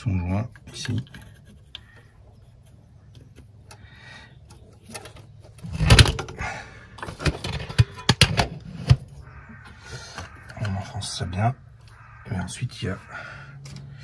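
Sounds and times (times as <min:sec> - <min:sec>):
sharp clicks and knocks: 0:07.0 - 0:10.8.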